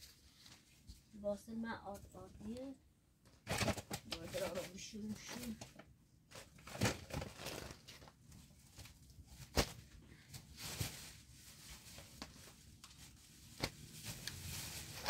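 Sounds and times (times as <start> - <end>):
flatbread sheets rustling: 6.3 - 15.0.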